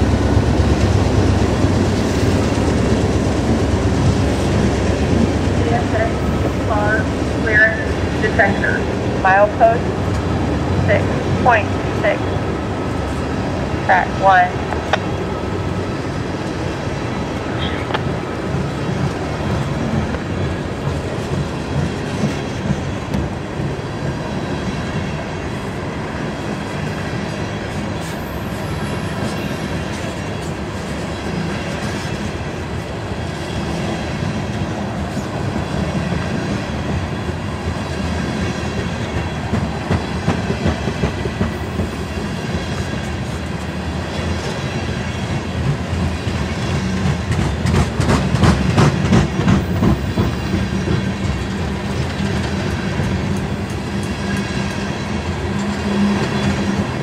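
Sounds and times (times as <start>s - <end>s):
train wheels rumbling on rail: 0.0s - 57.0s
wheels clacking over rail joints: 45.3s - 57.0s.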